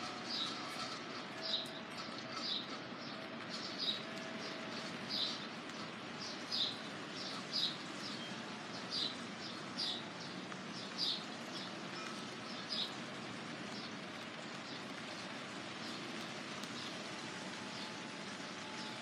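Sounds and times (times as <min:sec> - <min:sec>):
falling rain hiss: 0:00.0 - 0:19.0
bird chirping: 0:00.3 - 0:13.0.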